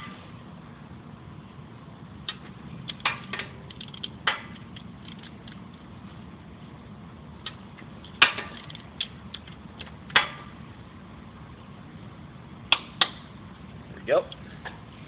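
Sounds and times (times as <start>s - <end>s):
steady low hum: 0.0s - 15.0s
metallic clicks of wrench socket: 3.7s - 5.6s.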